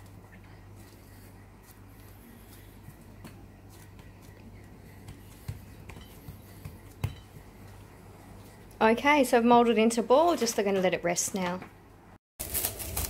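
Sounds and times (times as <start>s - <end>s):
hands kneading dough: 0.0s - 8.6s
low steady hum: 0.0s - 12.2s.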